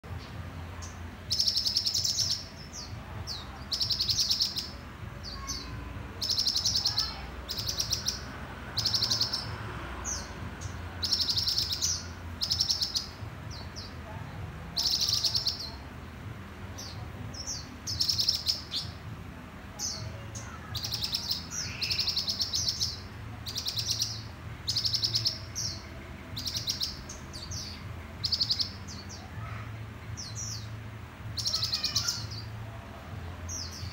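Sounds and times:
birds singing trilled phrases: 0:00.0 - 0:33.9.

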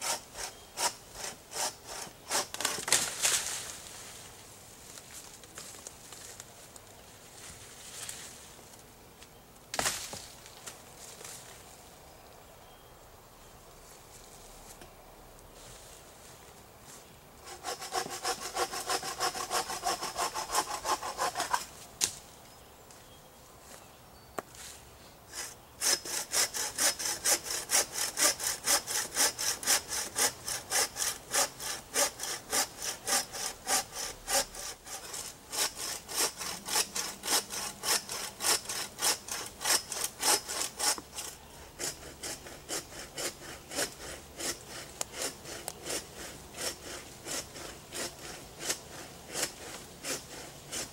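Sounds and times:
hand saw cutting wood: 0:00.0 - 0:03.0, 0:17.4 - 0:21.7, 0:25.3 - 0:50.9.

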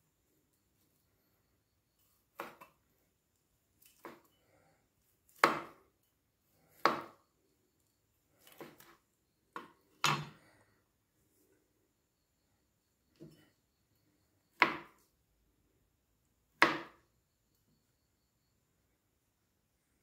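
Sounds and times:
cleaver chopping on plastic board: 0:05.3 - 0:05.8, 0:06.7 - 0:07.2, 0:09.5 - 0:10.4, 0:14.6 - 0:15.0, 0:16.6 - 0:17.0.

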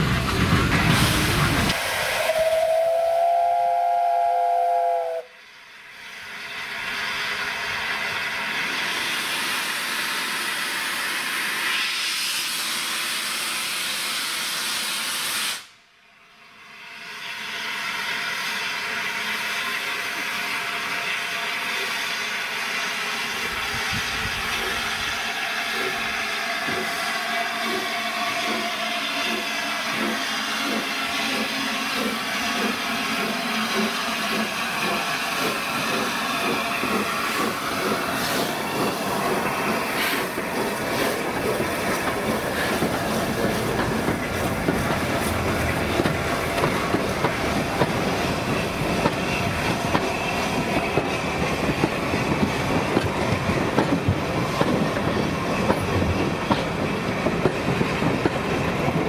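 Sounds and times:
quickening locomotive beat: 0:00.0 - 0:11.6, 0:19.7 - 0:59.0
steam hissing: 0:00.0 - 0:15.8, 0:16.5 - 0:59.0
steam locomotive chime whistle: 0:01.9 - 0:05.5.

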